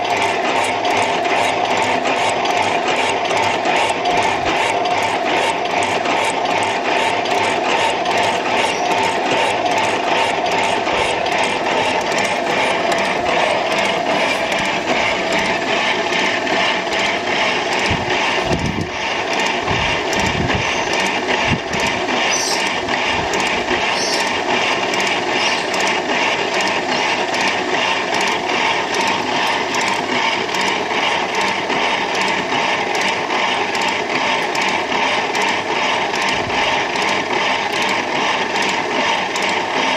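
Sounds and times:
metal shaper clattering: 7.1 - 17.9.

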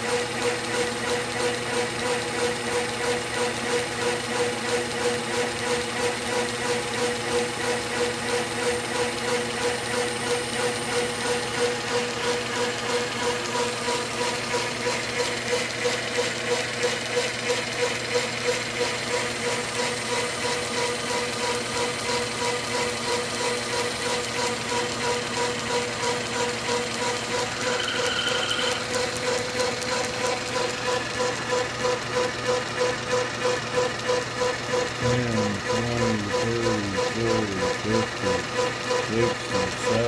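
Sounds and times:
metal lathe humming: 0.0 - 40.0
high squeal: 27.6 - 28.9.

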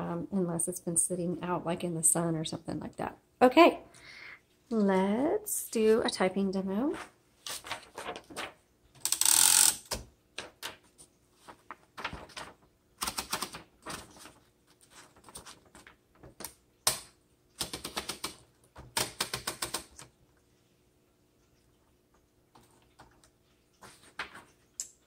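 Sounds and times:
paper rustling: 6.8 - 8.7, 10.4 - 16.4, 22.6 - 24.7
typewriter platen ratcheting clicks: 9.0 - 10.0, 17.6 - 20.0
typewriter clicks: 13.0 - 14.1, 16.4 - 20.1.

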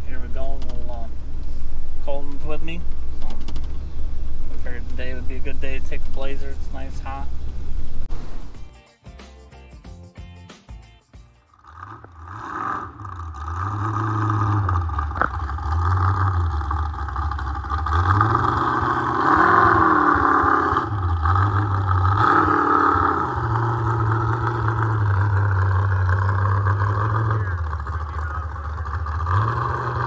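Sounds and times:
truck engine revving: 0.0 - 8.6, 11.4 - 30.0.

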